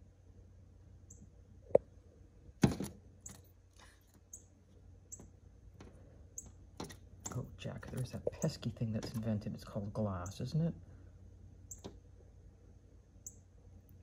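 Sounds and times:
bird chirping: 4.2 - 5.4, 6.3 - 9.4, 11.6 - 12.0, 13.2 - 13.5
cat pawing at window glass: 5.2 - 9.5.

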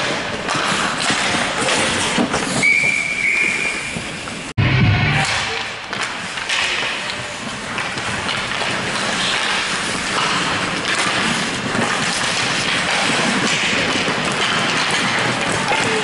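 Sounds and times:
skate blades scraping ice: 0.0 - 4.5, 5.9 - 16.0.

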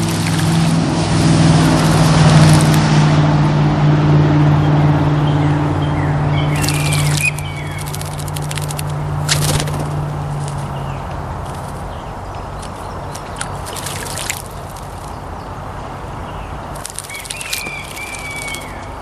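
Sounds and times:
vehicle engine hum: 0.0 - 19.0
bird chirps: 5.2 - 9.8, 16.3 - 19.0
sharp clicks: 6.6 - 11.6.

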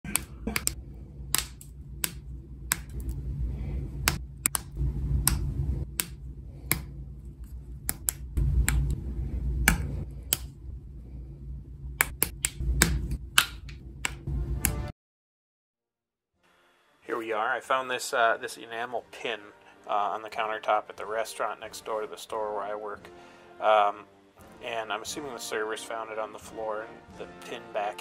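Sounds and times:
clicks and taps on metal pin: 7.8 - 9.0.

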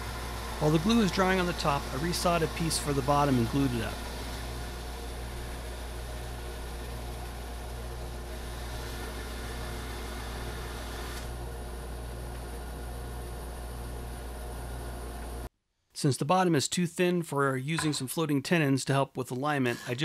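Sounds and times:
bandsaw motor hum: 0.0 - 15.5.

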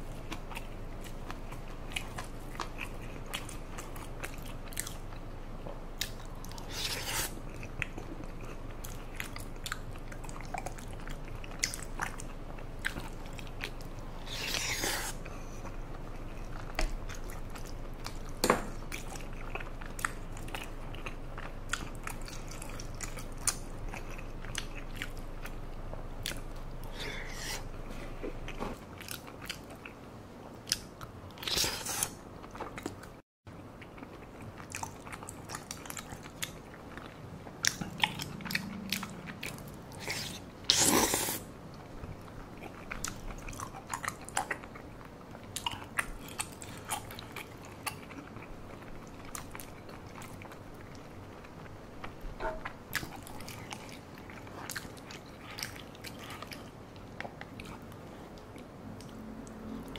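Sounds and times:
wet chewing and mouth smacks: 33.8 - 59.9.

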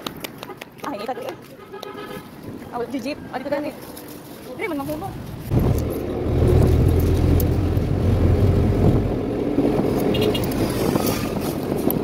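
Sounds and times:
vehicle engine drone from inside: 5.5 - 9.8.

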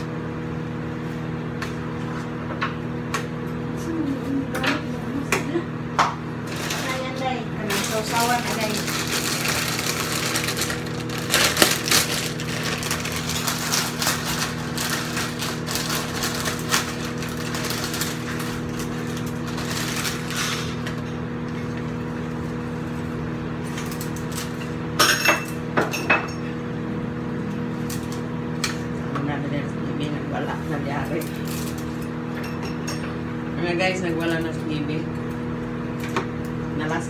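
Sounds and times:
steady hum: 0.0 - 37.0
plastic bag crinkling: 6.4 - 21.0, 31.2 - 32.0.

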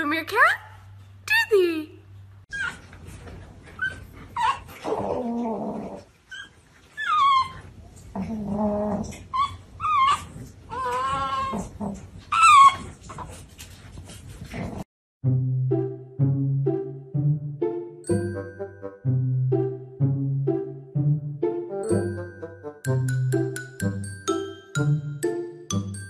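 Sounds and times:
puppy whining and whimpering: 2.5 - 3.0, 3.6 - 13.4
puppy moaning: 3.7 - 13.3
music with chime-like notes: 18.0 - 19.9, 21.8 - 26.0.

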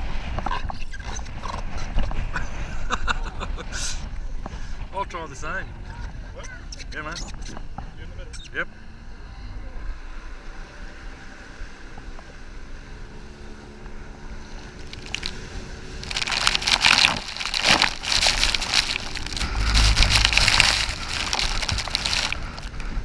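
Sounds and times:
boat engine humming: 14.2 - 23.0
wind buffeting microphone: 14.6 - 23.0
rushing spray and splashing: 14.7 - 22.8.

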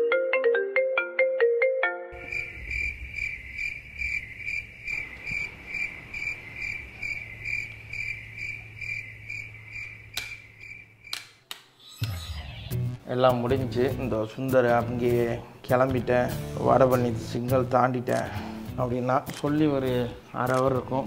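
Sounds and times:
marimba ringtone melody: 0.0 - 2.2
cricket chirping: 2.1 - 12.6
sharp clicks: 10.1 - 12.3.

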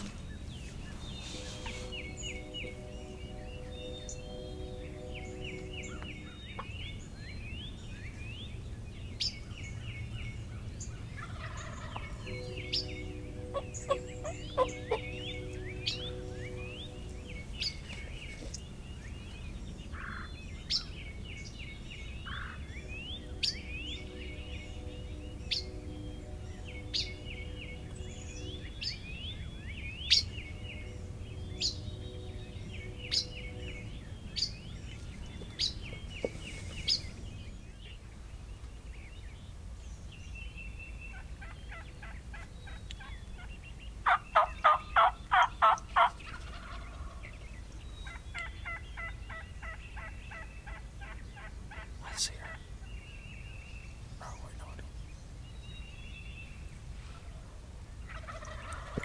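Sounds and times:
wild turkey calling: 0.0 - 8.5, 10.5 - 37.2, 41.1 - 52.6, 57.0 - 59.0
songbirds chirping: 0.0 - 59.0.

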